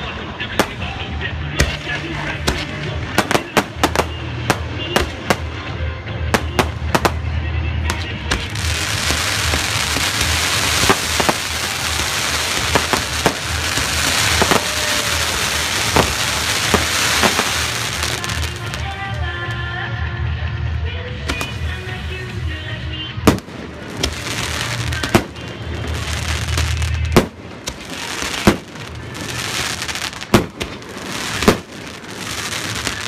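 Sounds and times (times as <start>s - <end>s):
fireworks bangs: 0.0s - 19.7s, 21.2s - 33.0s
fireworks hiss: 8.3s - 18.9s, 23.3s - 33.0s.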